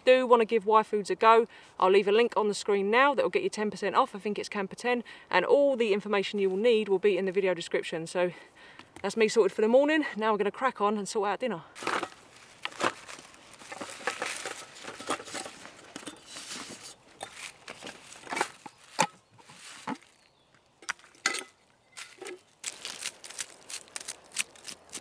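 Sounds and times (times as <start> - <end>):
camping stove parts clicking: 11.8 - 20.0, 20.8 - 25.0
hand brushing a tree stump: 11.8 - 20.3, 22.0 - 25.0
mesh bag rustling: 11.8 - 20.3, 22.0 - 25.0.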